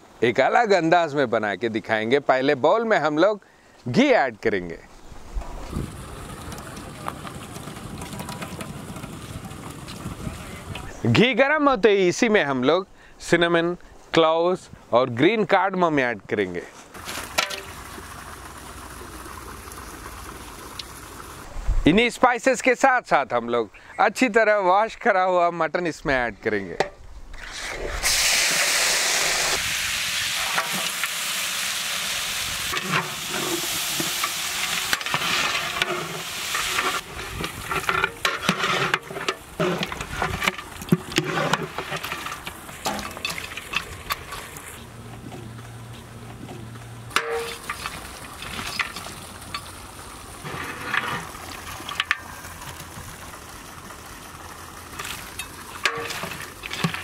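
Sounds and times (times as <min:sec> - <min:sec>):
meat sizzling in hot fat: 0:28.0 - 0:37.8
metal ladle scraping a pot: 0:32.7 - 0:44.6, 0:47.1 - 0:49.7, 0:50.4 - 0:51.4, 0:55.8 - 0:57.0.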